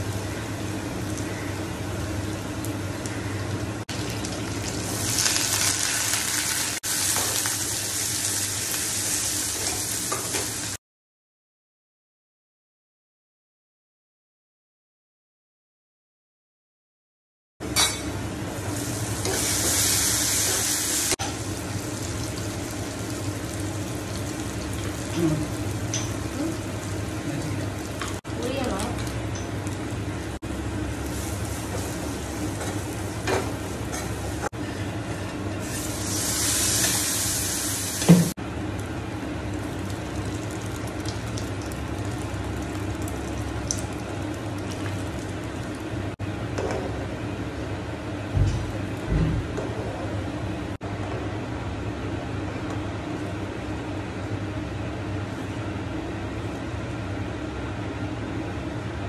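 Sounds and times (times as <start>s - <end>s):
vegetables sizzling in pan: 3.9s - 10.8s, 17.8s - 34.5s, 35.6s - 38.4s.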